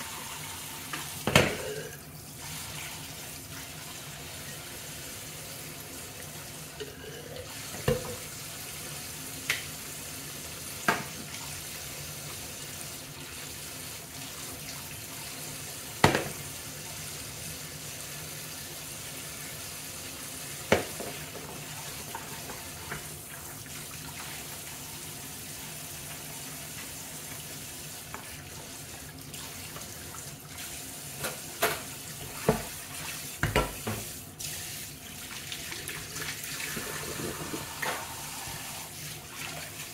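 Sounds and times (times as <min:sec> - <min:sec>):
tap running into metal sink: 0:07.7 - 0:08.3
dishes knocking against sink: 0:20.7 - 0:21.5.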